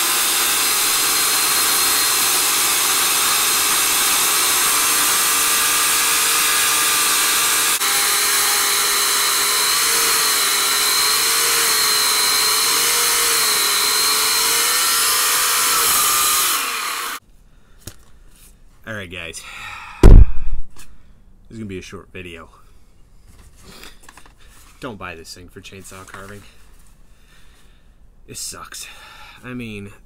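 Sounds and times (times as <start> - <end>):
chainsaw motor spinning down: 0.0 - 17.2
electric chainsaw cutting wood: 0.0 - 17.2.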